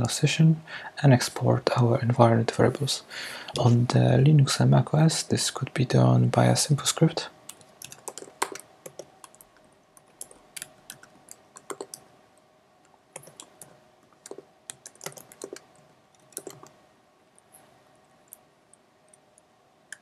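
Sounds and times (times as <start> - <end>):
typing on computer keyboard: 7.5 - 12.0, 13.1 - 16.8.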